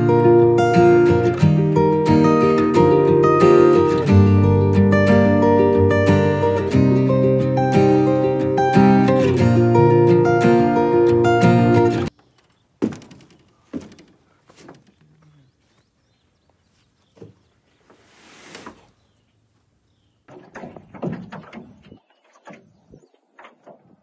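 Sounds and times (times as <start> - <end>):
acoustic guitar music: 0.0 - 12.1.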